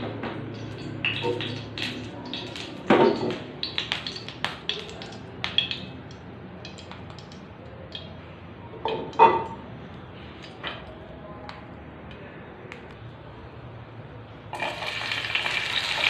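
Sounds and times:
light taps and clicks of kitchenware: 0.1 - 8.2.

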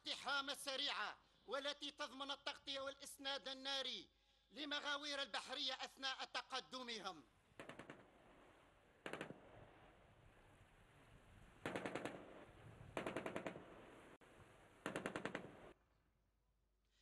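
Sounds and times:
low hiss: 7.3 - 15.8
automatic weapon fire: 7.6 - 8.1, 9.0 - 9.5, 11.6 - 13.9, 14.8 - 15.8.

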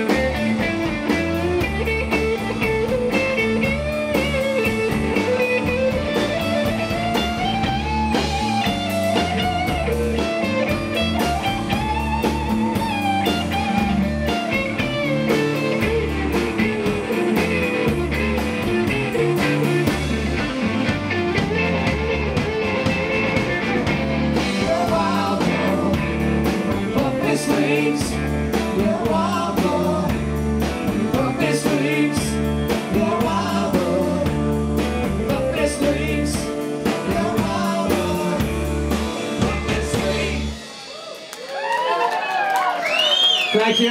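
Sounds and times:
bass guitar: 0.0 - 42.0
drums: 0.0 - 43.9
electric guitars: 0.0 - 43.9.

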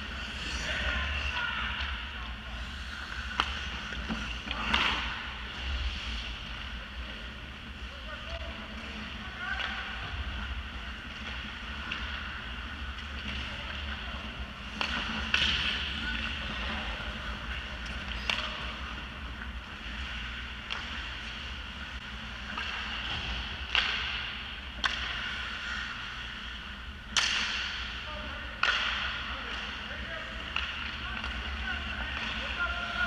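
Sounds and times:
stick and puck clacks: 2.9 - 5.2, 11.1 - 13.9, 14.6 - 16.8, 17.4 - 26.0, 27.1 - 33.0.

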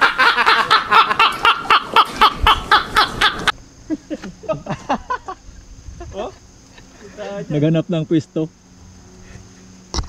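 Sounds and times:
person laughing hard: 0.0 - 5.4.

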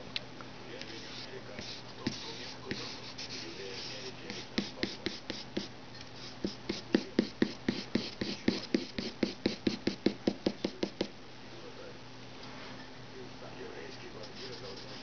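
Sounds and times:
faint steady hum: 0.0 - 15.0
pencil tapping strokes on paper: 0.8 - 5.7, 6.3 - 11.1.

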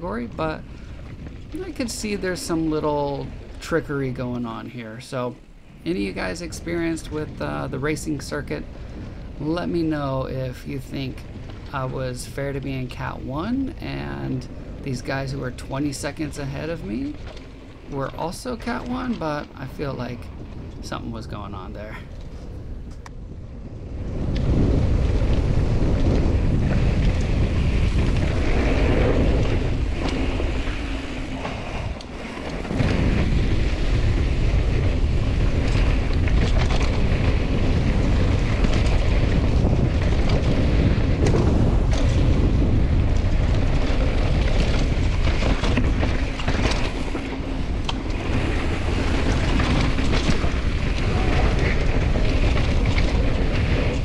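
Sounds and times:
bike clicks and rattles: 0.0 - 4.5, 10.8 - 54.0
wind rumbling on microphone: 0.0 - 54.0.

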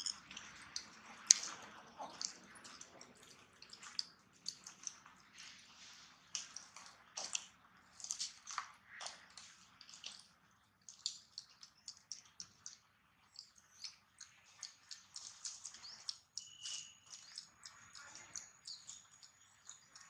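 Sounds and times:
small animals chirping: 10.9 - 20.0.

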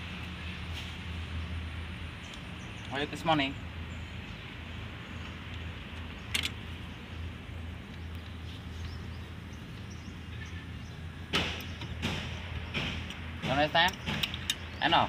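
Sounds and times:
hand tools clicking on metal: 11.6 - 14.9.

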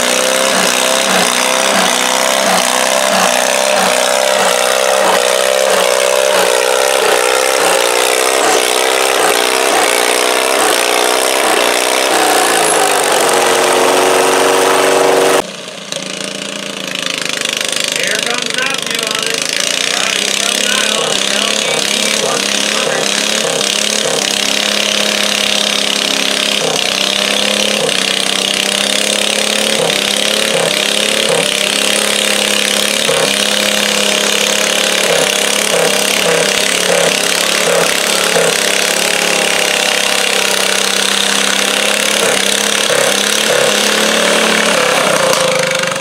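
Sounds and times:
tractor engine running flat out: 0.0 - 46.0.

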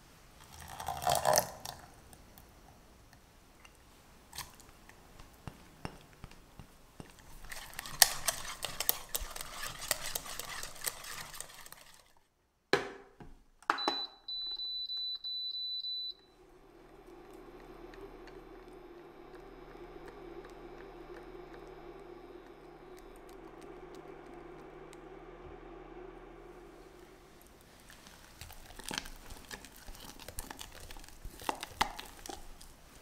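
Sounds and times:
whisk beating eggs in pan: 6.6 - 12.2
cooktop low hum: 12.8 - 33.0.

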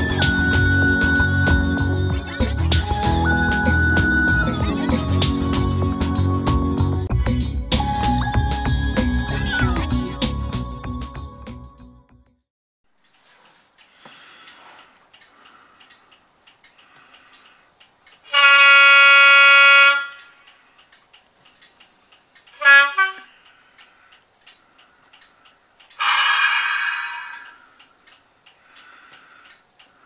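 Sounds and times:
faint regular ticking: 12.9 - 18.3, 20.1 - 22.6, 23.3 - 26.0, 27.3 - 30.0
model locomotive horn blasts: 18.3 - 20.3, 22.6 - 23.4, 26.0 - 27.6.

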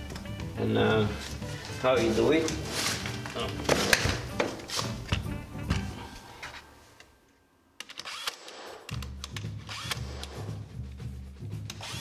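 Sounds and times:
background music with bass: 0.0 - 6.2, 8.9 - 12.0
nail gun shots: 7.8 - 10.4.

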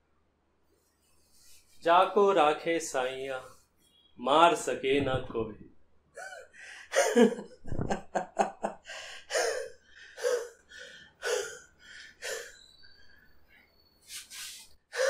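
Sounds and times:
person gasping and panting: 8.8 - 12.6, 14.4 - 15.0.

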